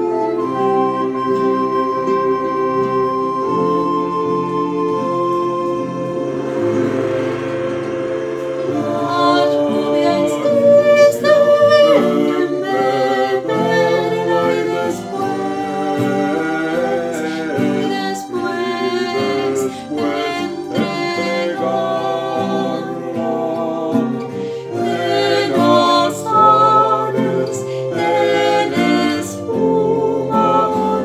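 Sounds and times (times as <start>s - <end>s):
strummed acoustic guitar: 0.0s - 31.0s
man singing: 8.7s - 31.0s
woman singing: 8.7s - 31.0s.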